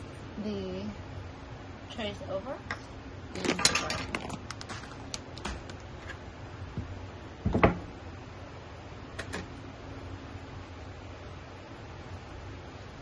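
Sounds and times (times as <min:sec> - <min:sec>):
plastic tray clattering on shelving: 0:03.4 - 0:05.8.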